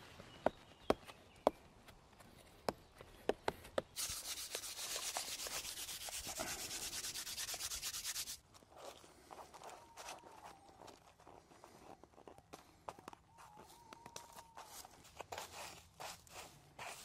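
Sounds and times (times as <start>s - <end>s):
plant matter rubbed on paper: 4.0s - 8.4s, 14.3s - 17.0s.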